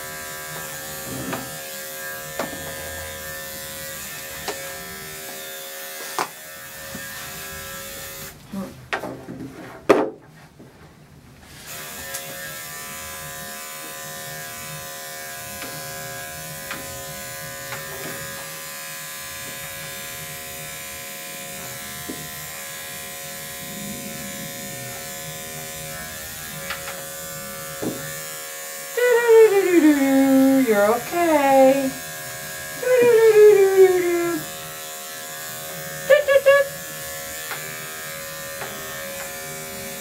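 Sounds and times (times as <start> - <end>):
electric clipper buzzing: 0.0 - 8.4, 11.5 - 40.0
dog whining: 32.8 - 34.4, 36.1 - 36.7.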